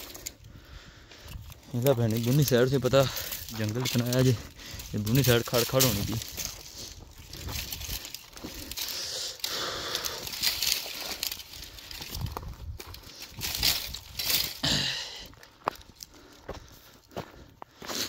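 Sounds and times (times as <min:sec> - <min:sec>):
dry brush rustling and crackling: 0:00.0 - 0:18.0
small branches snapping: 0:01.7 - 0:16.1.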